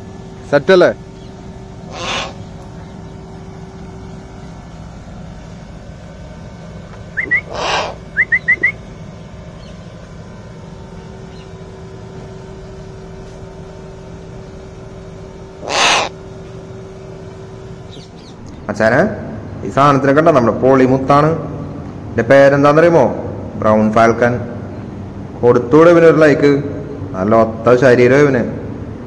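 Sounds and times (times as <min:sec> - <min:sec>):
steady low hum: 0:00.0 - 0:29.0.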